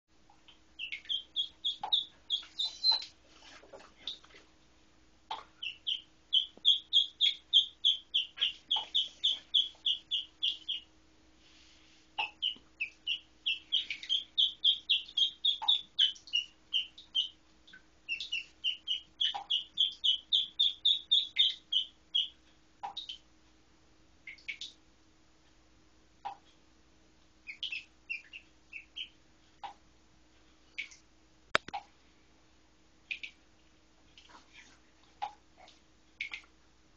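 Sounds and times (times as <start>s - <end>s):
duckling peeping: 0.3s - 4.4s, 5.3s - 10.9s, 12.1s - 23.3s, 27.4s - 29.8s.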